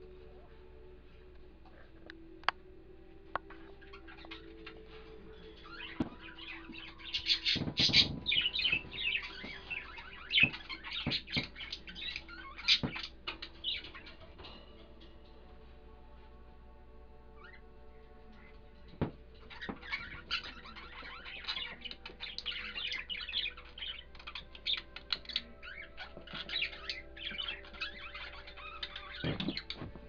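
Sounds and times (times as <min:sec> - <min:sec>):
parrot chirping and squeaking: 0:03.4 - 0:15.0, 0:18.4 - 0:30.0.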